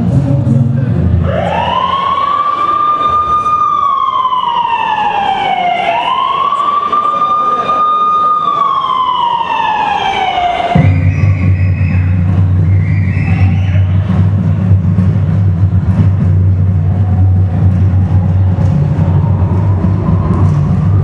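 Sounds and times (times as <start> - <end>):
siren wailing: 1.2 - 12.4, 17.1 - 21.0
heavy bass beat: 10.7 - 21.0.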